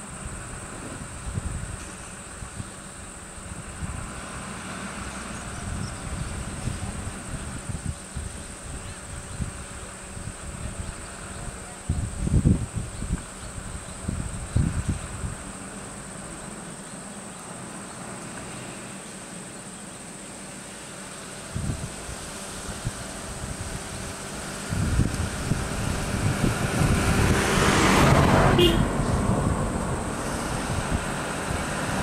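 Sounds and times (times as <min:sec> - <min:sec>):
insects droning: 0:00.0 - 0:32.0
low rumbling bursts: 0:21.5 - 0:32.0.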